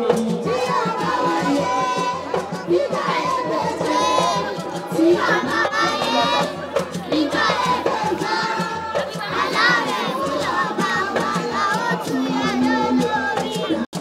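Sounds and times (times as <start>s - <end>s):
drums and percussion: 0.0s - 14.0s
voices singing with vibrato: 0.0s - 14.0s.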